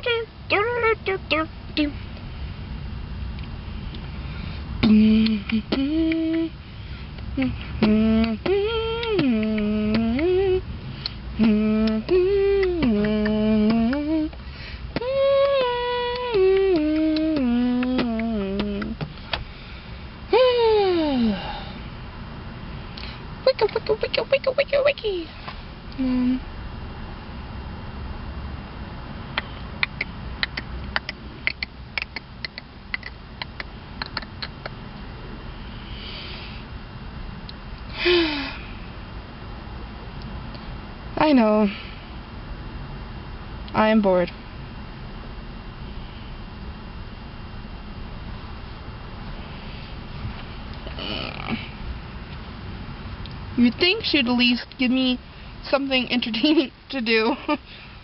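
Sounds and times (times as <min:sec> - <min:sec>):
woman singing wordless tune: 0:00.0 - 0:02.0, 0:04.8 - 0:06.6, 0:07.3 - 0:10.7, 0:11.3 - 0:19.1, 0:20.3 - 0:21.7.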